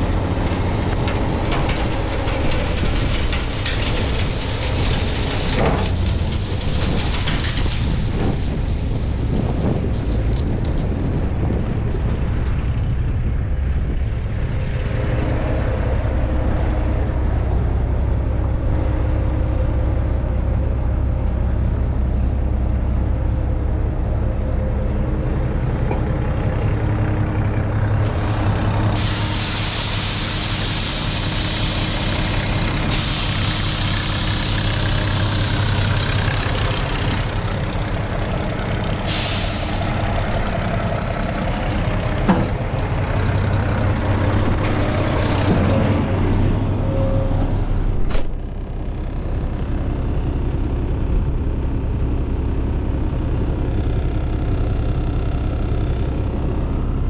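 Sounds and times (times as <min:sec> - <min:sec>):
diesel engine idling: 0:10.4 - 0:57.0
air hissing: 0:28.8 - 0:36.2, 0:39.0 - 0:40.1.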